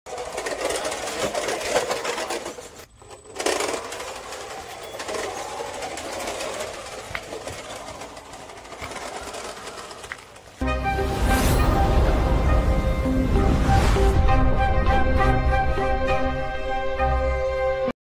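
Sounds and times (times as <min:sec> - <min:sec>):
tyres rolling over concrete: 0:00.1 - 0:10.6.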